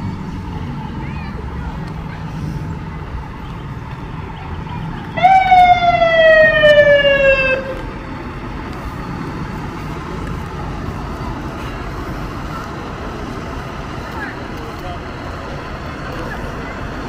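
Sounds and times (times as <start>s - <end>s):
low street background: 0.0s - 17.0s
fire truck siren wail: 5.1s - 8.4s.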